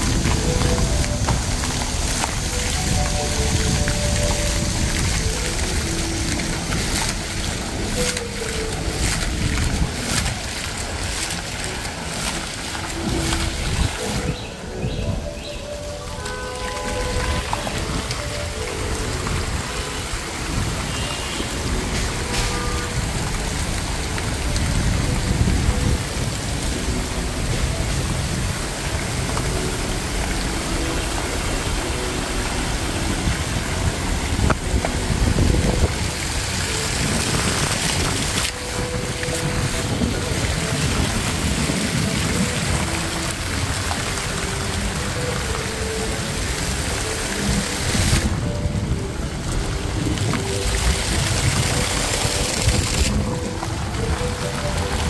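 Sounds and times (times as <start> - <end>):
dense street background hiss: 0.0 - 55.0.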